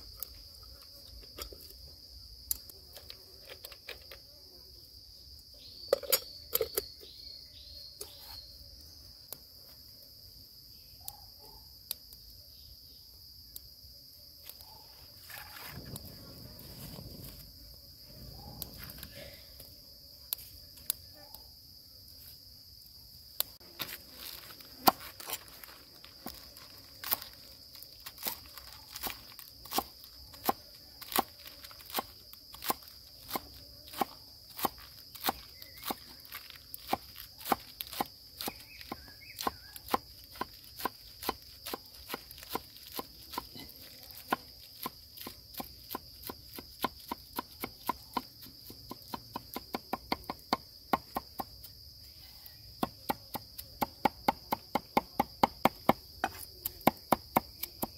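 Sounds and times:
knife chopping food: 36.8s - 51.5s.

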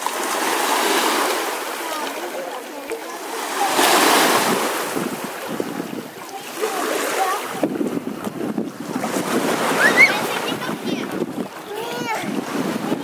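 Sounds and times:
small waves lapping: 0.0s - 13.0s
faint voices: 0.9s - 13.0s
wind on microphone: 3.5s - 13.0s.

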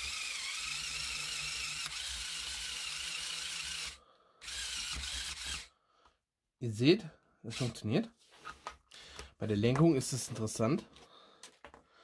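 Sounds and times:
small electric motors whining: 0.0s - 5.7s.

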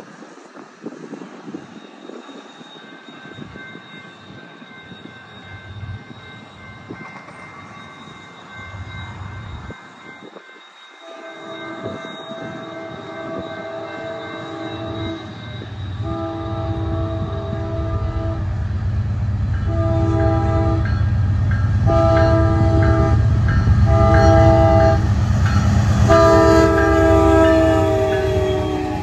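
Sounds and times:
diesel locomotive engines rumbling: 0.0s - 29.0s
train air horn: 11.0s - 18.6s, 19.6s - 21.0s, 21.8s - 25.1s, 25.8s - 29.0s.

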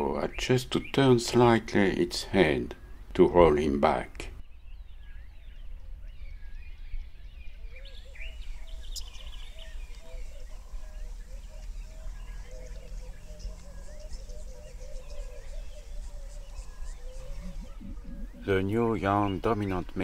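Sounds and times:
birds chirping and calling: 0.0s - 20.0s
low warbling bird call: 4.4s - 20.0s
steady low rumble: 8.4s - 20.0s.

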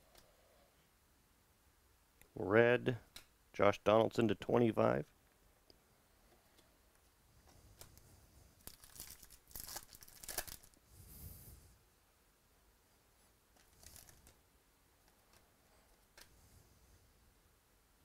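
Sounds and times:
foil wrapper tearing and crinkling: 8.6s - 10.8s.

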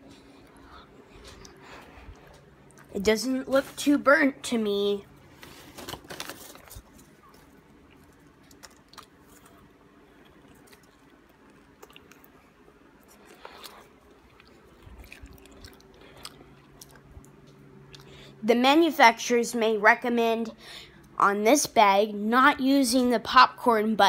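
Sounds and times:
faint low hum: 0.0s - 24.0s
person chewing popcorn: 0.1s - 2.9s, 6.6s - 18.3s.

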